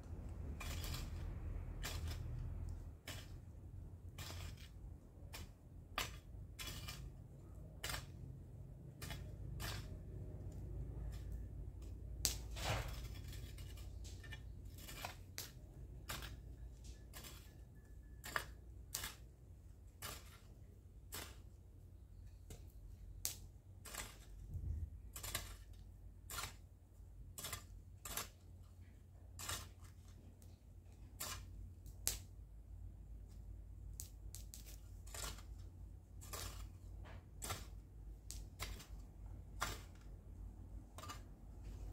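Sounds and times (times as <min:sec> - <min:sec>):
low steady rumble: 0:00.0 - 0:41.9
hoe chopping into soil: 0:36.2 - 0:39.0, 0:39.6 - 0:40.1.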